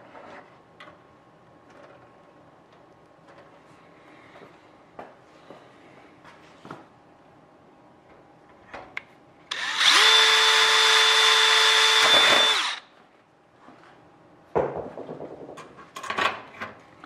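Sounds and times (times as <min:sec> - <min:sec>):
power drill boring through metal: 0:09.5 - 0:12.8
knocks and clatter: 0:14.6 - 0:16.5.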